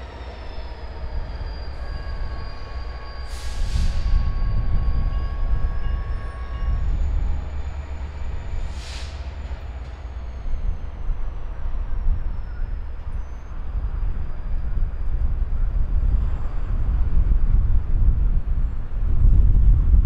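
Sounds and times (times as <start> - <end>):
diesel locomotive engine rumble: 0.0 - 20.0
brief hiss: 8.7 - 9.3.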